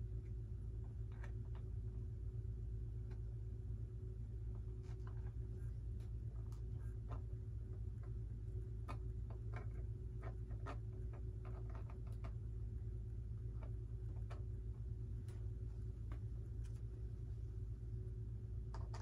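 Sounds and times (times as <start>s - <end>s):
steady low hum: 0.0s - 19.0s
small parts clicking and tapping: 6.0s - 12.4s, 18.7s - 19.0s.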